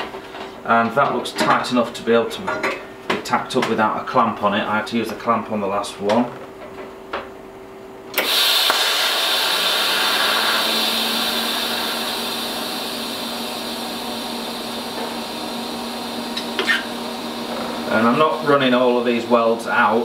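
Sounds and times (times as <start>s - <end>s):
welding arc hissing: 8.2s - 19.4s
steady hum: 9.0s - 20.0s.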